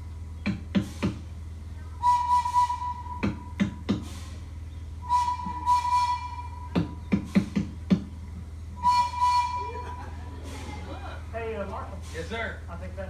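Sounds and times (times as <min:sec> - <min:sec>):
flute holding long note: 0:02.0 - 0:03.6, 0:05.0 - 0:07.0, 0:08.8 - 0:10.0
drum beats: 0:03.1 - 0:04.1, 0:06.6 - 0:08.2.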